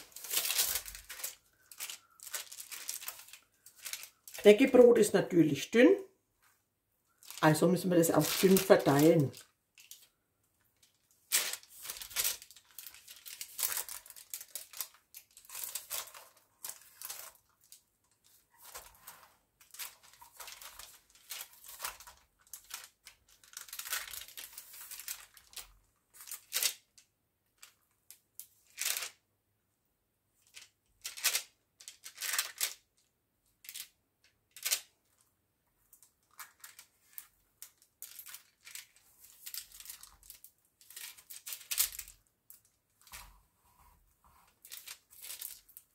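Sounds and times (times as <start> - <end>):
baking paper rustling: 0.0 - 5.3, 7.2 - 10.1, 10.8 - 26.8, 36.0 - 42.2, 43.0 - 45.9.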